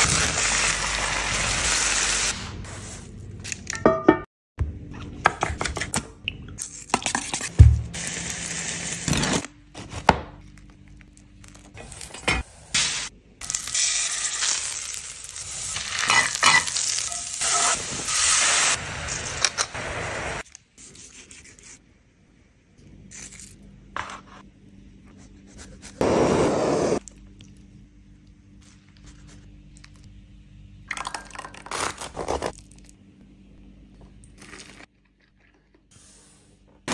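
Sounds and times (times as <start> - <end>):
butane torch hissing: 26.0 - 27.0.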